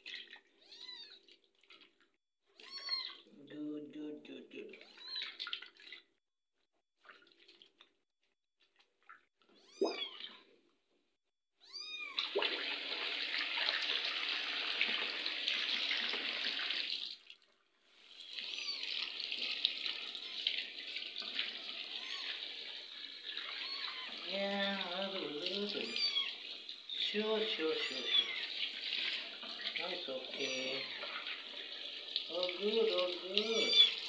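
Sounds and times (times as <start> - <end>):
tap water running into basin: 12.1 - 17.5, 18.1 - 34.0.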